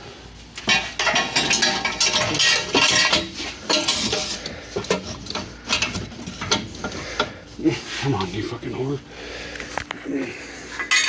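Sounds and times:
metal headers clanking and scraping: 0:00.6 - 0:08.6, 0:10.4 - 0:11.0.

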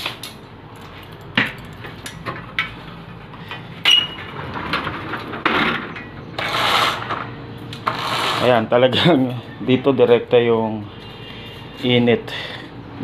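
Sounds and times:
objects knocking and clicking: 0:01.1 - 0:02.8.

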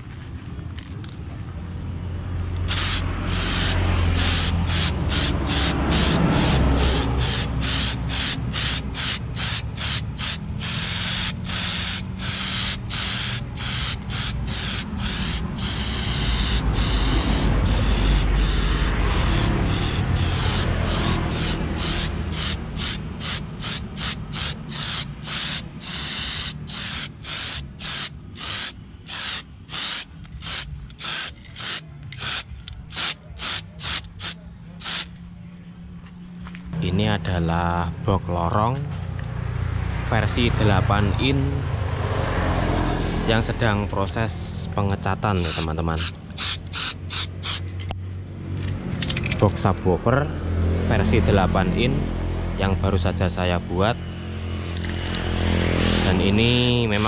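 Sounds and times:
spray paint can hissing: 0:02.6 - 0:35.1, 0:45.5 - 0:47.7.

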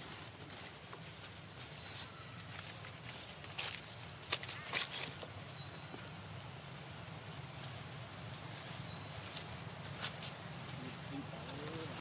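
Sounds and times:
steady low hiss: 0:00.0 - 0:12.0
bird chirp: 0:01.5 - 0:02.7, 0:04.6 - 0:06.4, 0:08.3 - 0:09.7.

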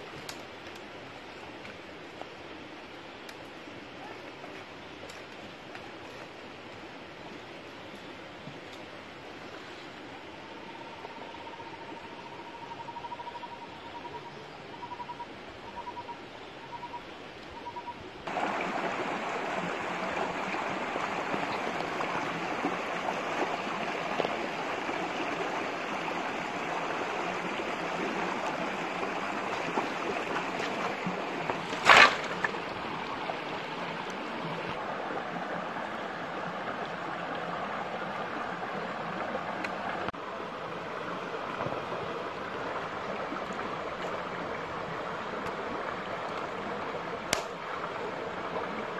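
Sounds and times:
stream rushing over rocks: 0:18.2 - 0:48.9.

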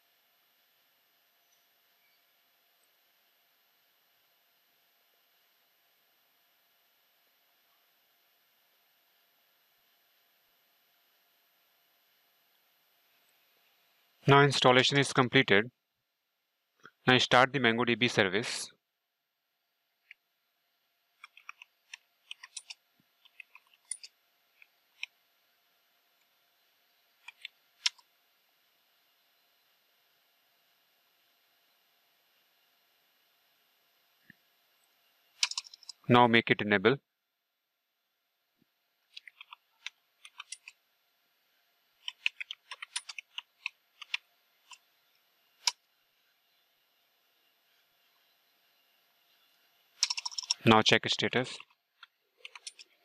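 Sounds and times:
keyboard keys clicking: 0:35.4 - 0:36.0, 0:50.0 - 0:50.6.

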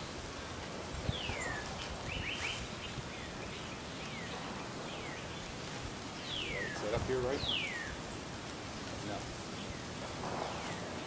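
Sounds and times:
outdoor background hiss: 0:00.0 - 0:11.0
bird chirps: 0:01.1 - 0:05.6, 0:06.2 - 0:08.0
birds whistling: 0:01.1 - 0:08.1, 0:09.5 - 0:11.0.

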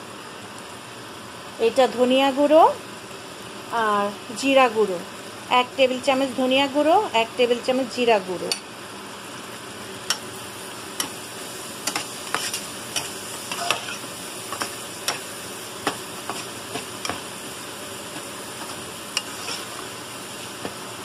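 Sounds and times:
onions sizzling in oil: 0:00.0 - 0:21.0
spatula scraping a frying pan: 0:11.8 - 0:17.3, 0:18.1 - 0:20.0.

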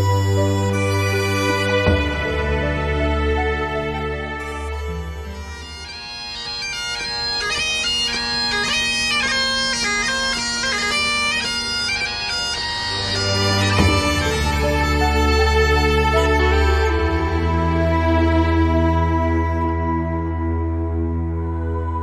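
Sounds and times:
soft background music: 0:00.0 - 0:05.9, 0:12.8 - 0:22.0
bagpipe tune over drone: 0:00.0 - 0:22.0.

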